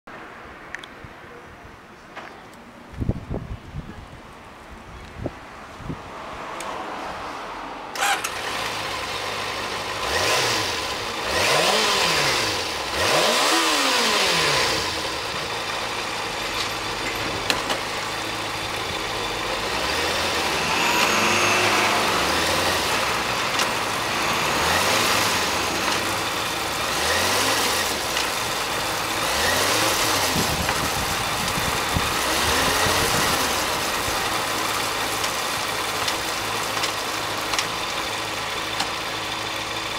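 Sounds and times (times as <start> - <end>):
motorcycle engine starting: 7.9 - 39.9
motorcycle engine idling: 14.9 - 20.9, 21.9 - 32.3, 33.1 - 39.9.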